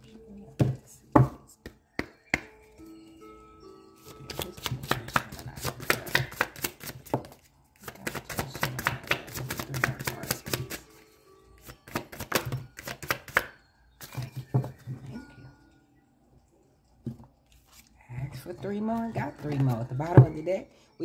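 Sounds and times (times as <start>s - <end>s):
cards being shuffled: 4.0s - 11.0s, 11.6s - 14.2s, 17.5s - 18.0s.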